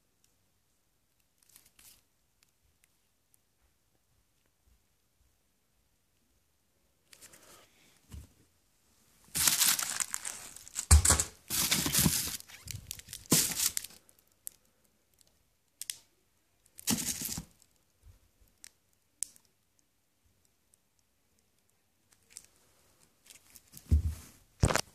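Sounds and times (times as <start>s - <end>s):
plastic wrapping crinkling: 9.3s - 14.6s, 16.7s - 17.6s, 24.6s - 24.9s.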